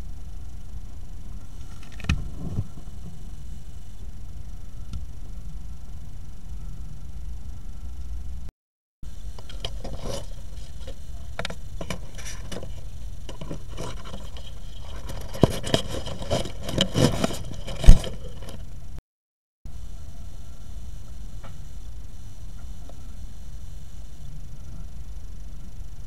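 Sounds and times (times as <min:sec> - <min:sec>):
steady low hum: 0:00.0 - 0:19.0, 0:19.7 - 0:26.0
hand handling camera: 0:09.4 - 0:18.6.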